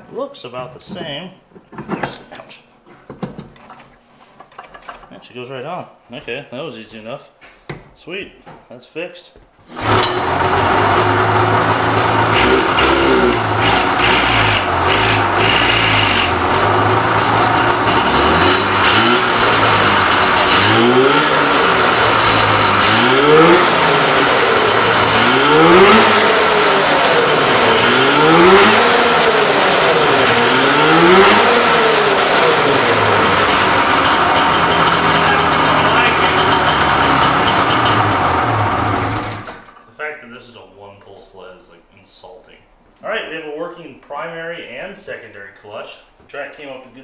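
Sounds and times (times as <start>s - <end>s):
snowmobile engine revving: 9.7s - 39.5s.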